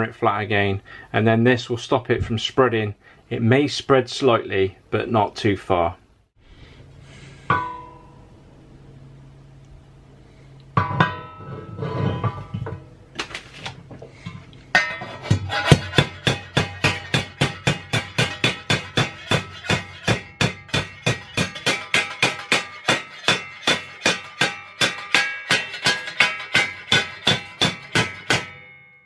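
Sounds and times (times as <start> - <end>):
hammer tapping steel: 7.5 - 8.2, 14.8 - 28.9.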